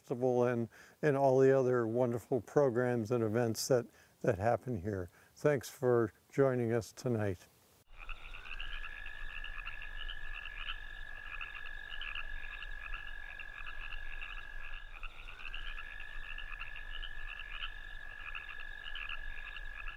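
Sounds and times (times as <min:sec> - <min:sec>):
frogs high trill: 0:07.9 - 0:19.9
frogs pulsing chirps: 0:07.9 - 0:19.9.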